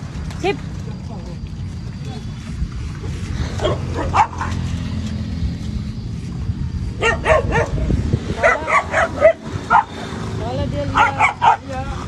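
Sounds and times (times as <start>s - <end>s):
low rumble: 0.0s - 10.9s
dog barking and yelping: 3.6s - 4.7s, 7.0s - 10.0s, 10.9s - 11.8s.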